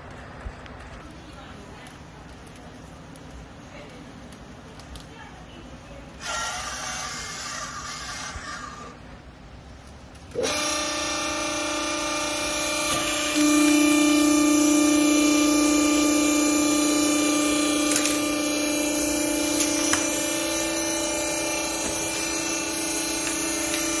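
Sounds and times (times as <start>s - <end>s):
faint clicks: 1.8s - 5.2s
hydraulic pump whining: 6.2s - 8.8s, 10.3s - 24.0s.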